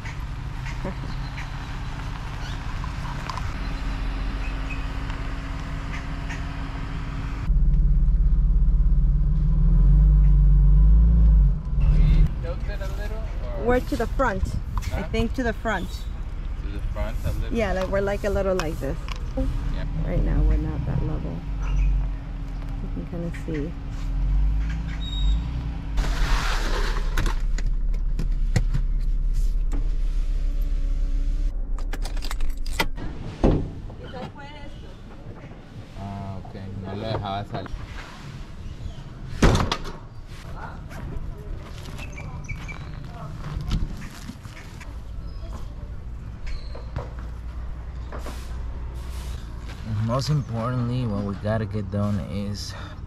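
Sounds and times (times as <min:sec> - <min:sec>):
van engine idling: 0:00.0 - 0:09.4, 0:26.0 - 0:32.9
van engine running: 0:00.0 - 0:33.0.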